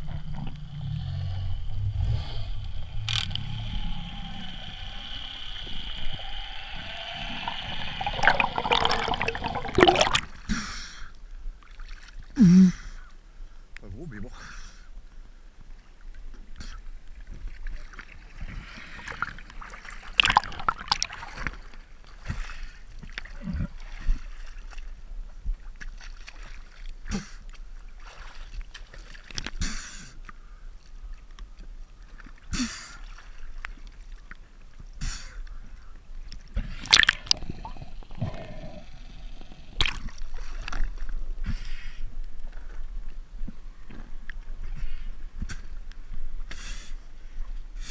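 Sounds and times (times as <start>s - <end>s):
seawater sloshing and splashing: 17.4s - 25.0s, 25.6s - 27.0s, 27.6s - 29.6s.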